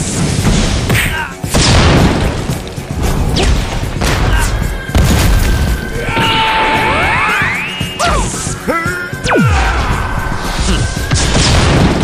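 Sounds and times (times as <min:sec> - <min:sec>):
music: 0:00.0 - 0:12.0
heavy booms: 0:00.4 - 0:06.2, 0:09.6 - 0:12.0
energy blast impacts: 0:01.5 - 0:06.0.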